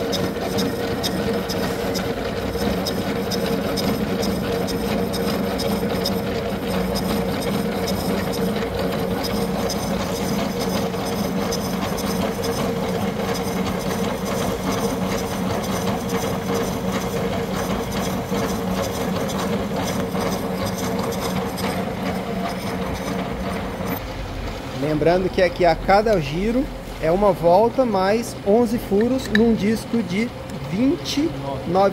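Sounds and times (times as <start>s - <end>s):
gear cutter grinding metal: 0.0s - 24.0s
milling machine hum: 0.0s - 31.9s.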